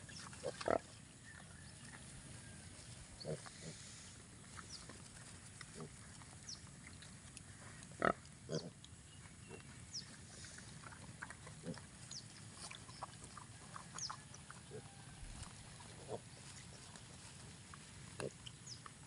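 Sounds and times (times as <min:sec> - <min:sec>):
piglets grunting: 0:08.0 - 0:08.8, 0:10.8 - 0:11.9.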